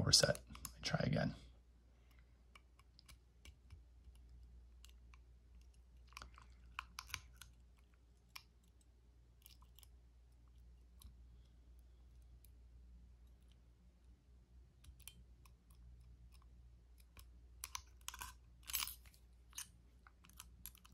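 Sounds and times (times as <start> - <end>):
lock pick clicking and scraping: 2.5 - 8.8, 14.8 - 20.9.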